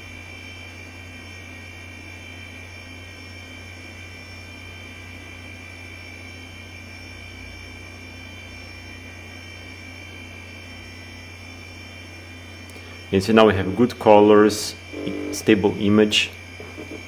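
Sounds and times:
computer fan and hard drive whir: 0.0 - 17.0
thin high whine: 0.0 - 17.0
low hum: 8.5 - 17.0.

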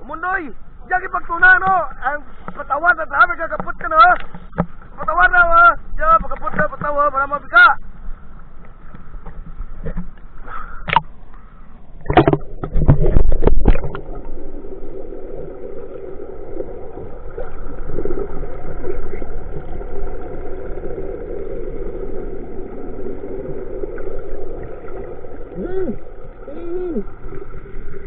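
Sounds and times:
boat engine underwater drone: 7.9 - 28.0
water splashing: 11.9 - 28.0.

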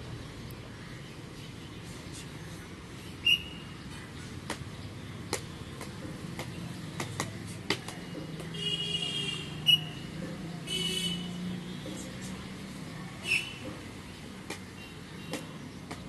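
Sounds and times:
footsteps marching on paving: 5.3 - 8.8.

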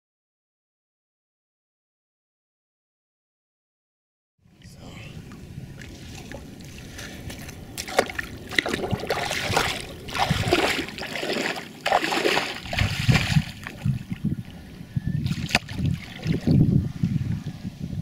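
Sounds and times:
feet wading through water: 5.2 - 14.6, 15.2 - 16.6.

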